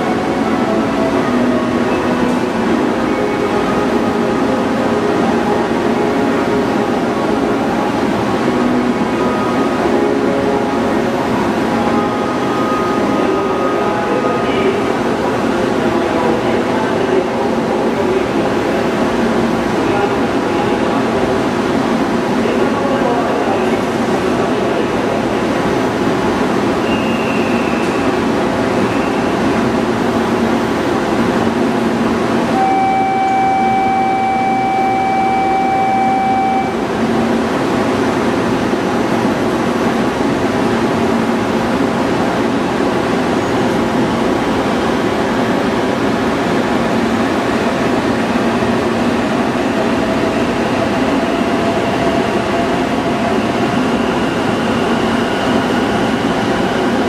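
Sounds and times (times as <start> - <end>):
steady electronic tone: 32.5 - 37.0.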